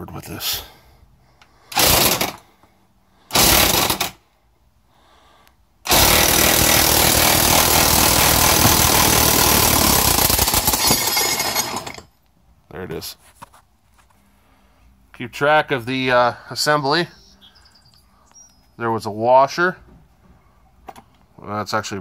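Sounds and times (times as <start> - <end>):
impact wrench hammering: 5.9 - 12.0.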